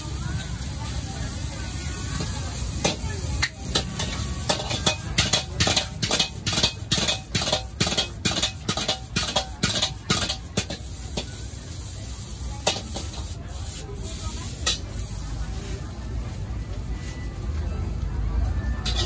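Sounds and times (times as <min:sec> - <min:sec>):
metal ladle clanking on wok: 0:02.8 - 0:11.4, 0:12.6 - 0:13.2.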